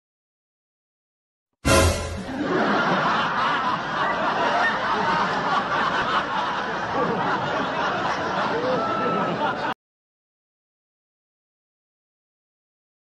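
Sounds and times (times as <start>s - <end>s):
people laughing and snickering: 2.2s - 9.8s.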